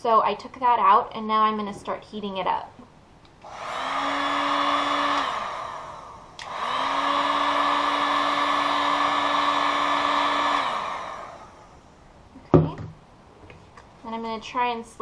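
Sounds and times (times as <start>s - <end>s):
heat gun click: 3.4s - 8.0s
heat gun fan whining: 3.4s - 12.0s.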